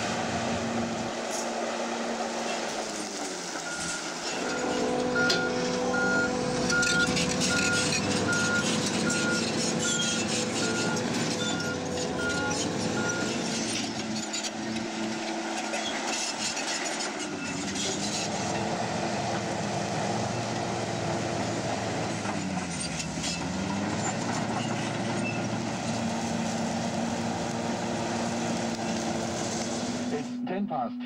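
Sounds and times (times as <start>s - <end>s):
bulldozer diesel engine under load: 0.0s - 30.9s
tracks clanking: 0.0s - 30.9s.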